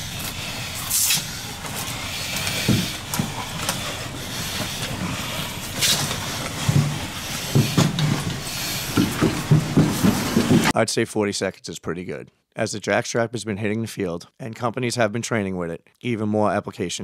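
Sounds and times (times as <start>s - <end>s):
short hissing bursts: 0.0s - 9.5s.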